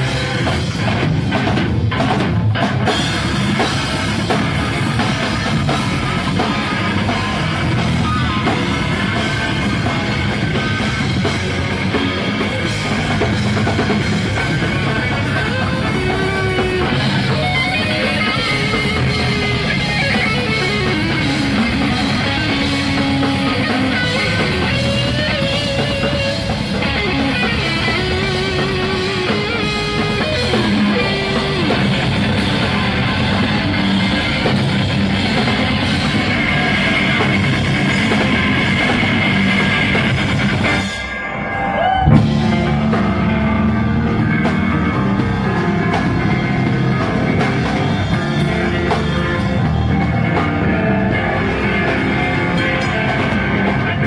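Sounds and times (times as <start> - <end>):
drum kit: 0.0 - 54.0
electric guitar: 0.0 - 54.0
rock band playing live: 0.0 - 54.0.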